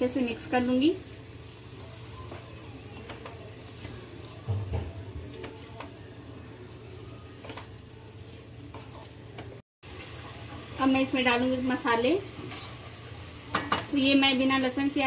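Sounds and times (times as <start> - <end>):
wooden spatula scraping metal pan: 5.3 - 10.1.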